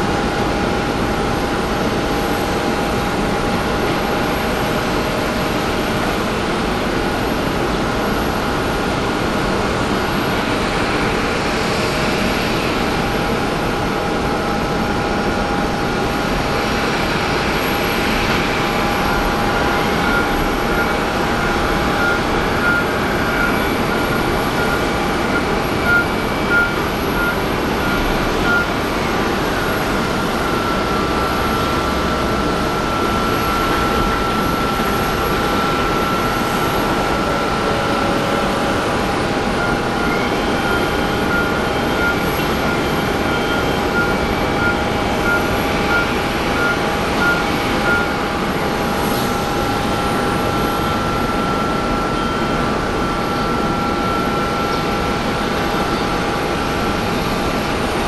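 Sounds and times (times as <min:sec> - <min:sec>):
idling aircraft engines: 0:00.0 - 0:58.0
warning beeps: 0:18.1 - 0:28.8, 0:29.5 - 0:48.4, 0:49.1 - 0:55.2.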